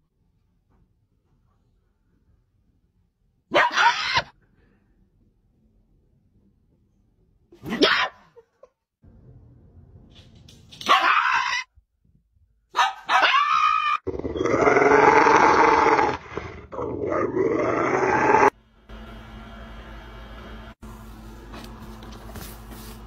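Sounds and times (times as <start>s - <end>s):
dog growling: 14.1s - 18.5s.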